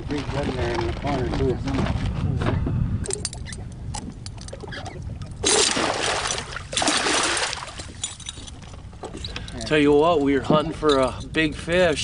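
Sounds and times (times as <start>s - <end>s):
fish splashing in net: 5.4s - 7.8s.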